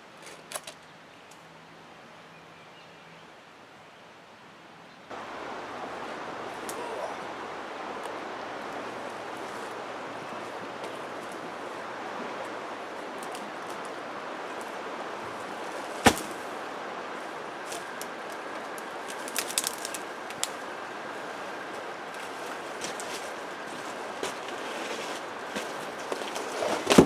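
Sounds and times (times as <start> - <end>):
flowing water rushing: 5.1 - 26.9
dry sticks snapping: 13.2 - 14.0, 17.6 - 20.6
log thudding onto stony ground: 16.0 - 16.4, 24.2 - 27.0.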